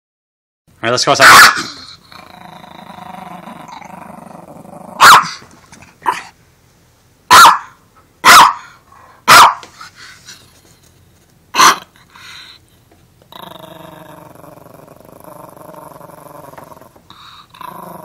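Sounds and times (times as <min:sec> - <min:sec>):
small dog barking: 0:01.2 - 0:01.8, 0:05.0 - 0:05.4, 0:07.3 - 0:08.7, 0:09.3 - 0:09.7, 0:11.6 - 0:11.9
small dog growling: 0:01.6 - 0:05.0, 0:13.3 - 0:18.0.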